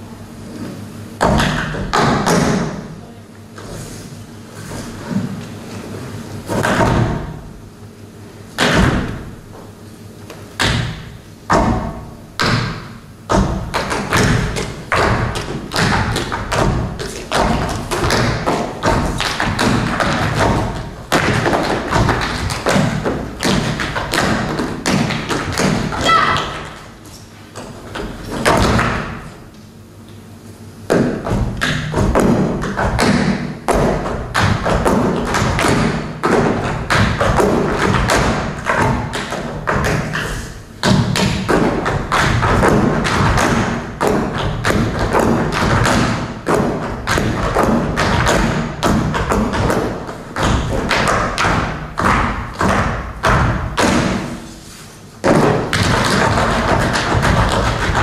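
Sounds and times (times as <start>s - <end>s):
dance shoes stamping on stage: 10.3s - 29.4s, 30.9s - 54.5s, 55.2s - 58.0s.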